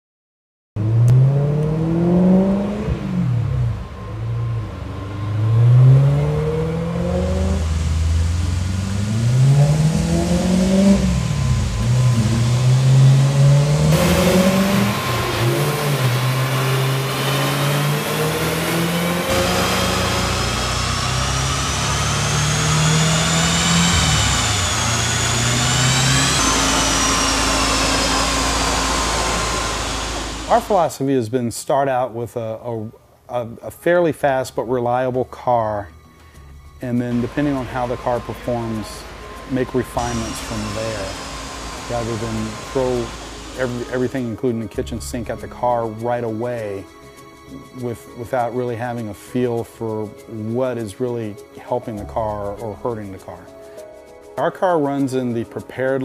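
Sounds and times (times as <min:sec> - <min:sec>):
car engine revving: 0:00.8 - 0:30.9, 0:36.2 - 0:49.0
high engine whine: 0:00.8 - 0:31.0, 0:35.2 - 0:49.2, 0:49.8 - 0:55.6.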